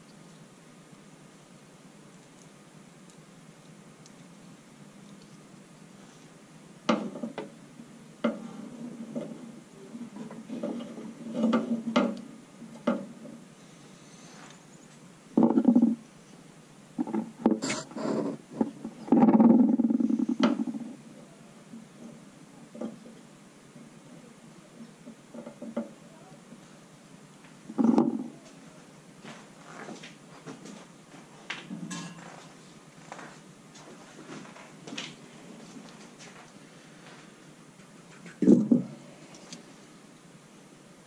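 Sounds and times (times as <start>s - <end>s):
rustling and scrapes: 8.2s - 12.3s, 12.9s - 16.4s, 17.0s - 21.0s, 27.7s - 39.9s
irregular clicks and knocks: 10.2s - 13.4s, 15.4s - 16.0s, 17.0s - 17.8s, 18.6s - 21.0s, 27.4s - 28.3s.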